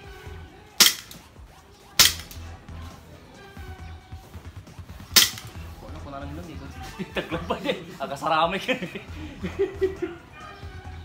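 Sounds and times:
airsoft pistol shots: 0.8 - 1.3, 2.0 - 2.4, 5.2 - 5.6.

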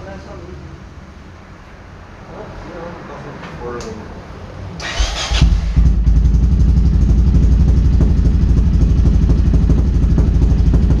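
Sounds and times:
motorcycle engine starting and idling: 4.8 - 11.0.

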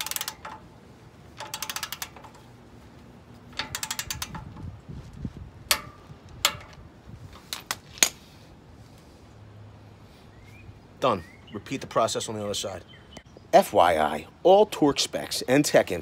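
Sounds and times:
sharp torque wrench clicks: 0.0 - 0.6, 1.4 - 2.4, 3.5 - 4.6
torque wrench ratcheting: 0.0 - 0.7, 1.3 - 2.5, 3.5 - 4.7.

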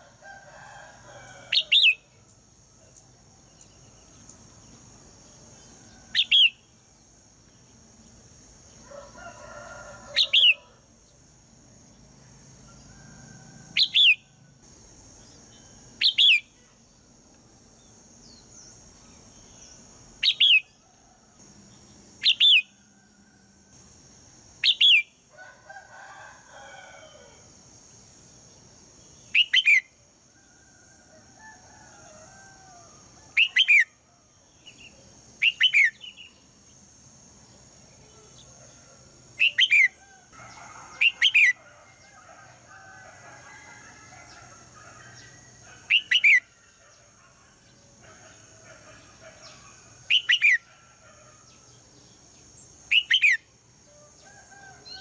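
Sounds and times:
steady high hiss: 0.0 - 55.0.

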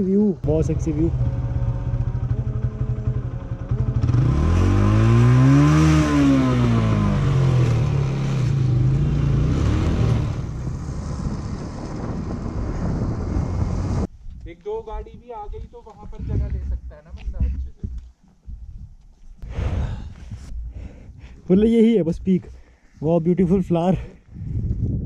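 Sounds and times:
motorcycle engine running: 0.4 - 14.1
wind on microphone: 9.7 - 21.5, 23.5 - 25.0.

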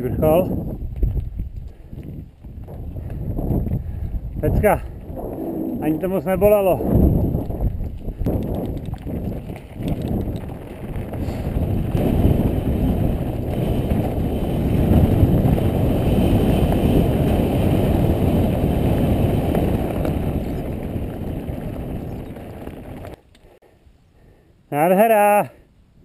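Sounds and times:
wind buffeting microphone: 0.0 - 23.6
bike rattling: 2.4 - 23.3
bike tyres crunching over rocks: 6.8 - 23.2.

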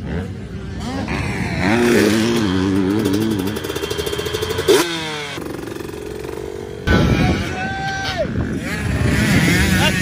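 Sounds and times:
dirt bike engine revving: 0.0 - 10.0.

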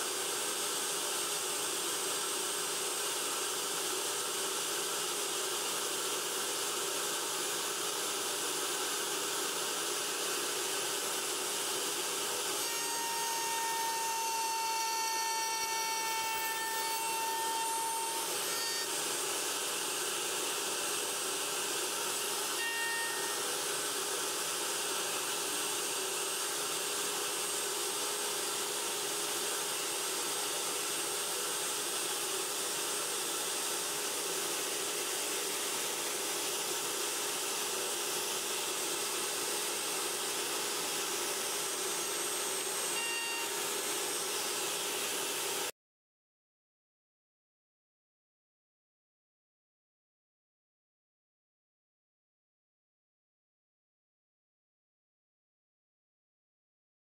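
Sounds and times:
router cutting wood: 0.1 - 45.7
high ringing tone: 42.9 - 43.6.

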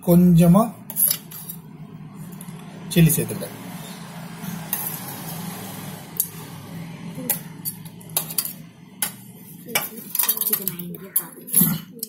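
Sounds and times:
metal spoon clinking dishes: 0.9 - 1.7, 7.3 - 12.0.

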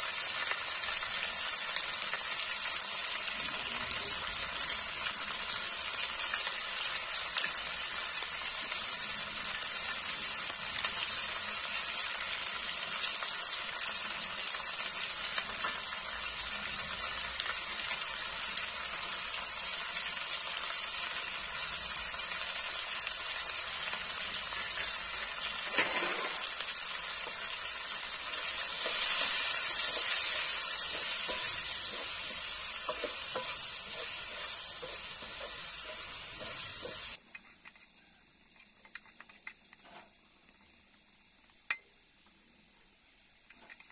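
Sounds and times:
food sizzling in hot oil: 0.0 - 43.9
wooden spatula scraping: 28.2 - 40.7.

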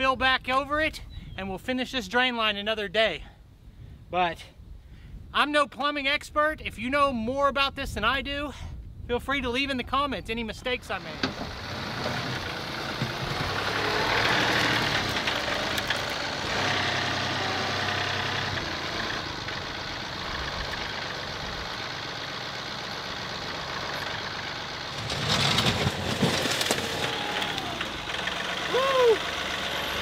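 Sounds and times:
tractor diesel engine running: 10.9 - 30.0
dirt and rocks pouring: 24.9 - 28.1.

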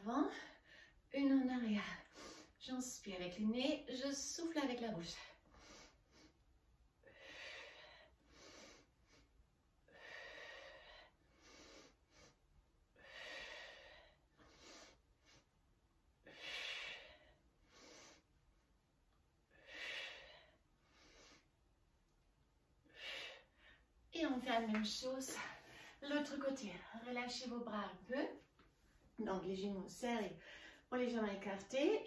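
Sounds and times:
woman breathing: 0.3 - 1.1, 1.8 - 2.6, 5.1 - 18.7, 19.4 - 21.8, 22.8 - 24.1, 25.3 - 26.2, 30.3 - 30.9.

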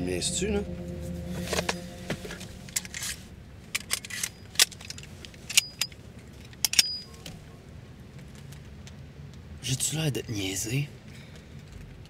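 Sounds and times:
handgun metallic clicks and clacks: 4.6 - 7.1.

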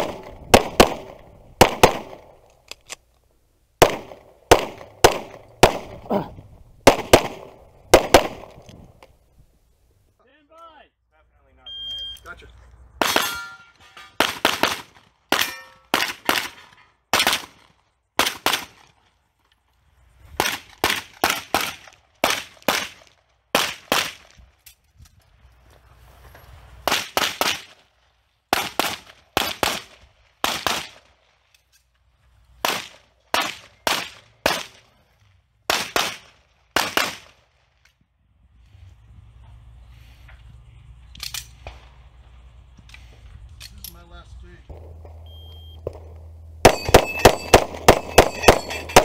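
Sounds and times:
pistol shots fired rapidly: 0.0 - 2.3, 3.8 - 8.5, 28.5 - 31.0, 46.6 - 49.0.

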